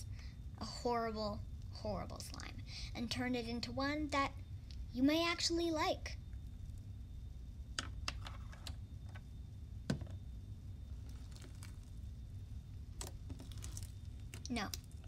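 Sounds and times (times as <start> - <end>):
slime kneaded by hand: 10.9 - 12.2, 12.9 - 15.0.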